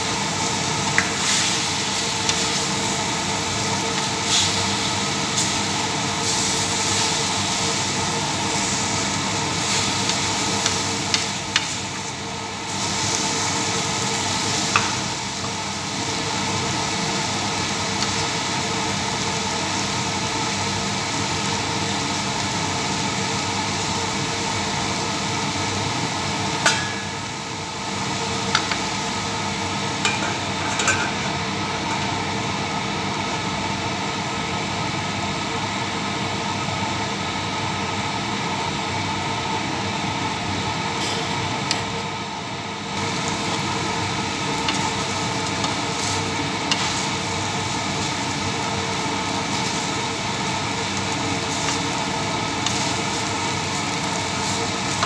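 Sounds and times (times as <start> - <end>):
chicken sizzling in frying pan: 0.0 - 55.0
spatula clinking on pan: 26.6 - 27.2.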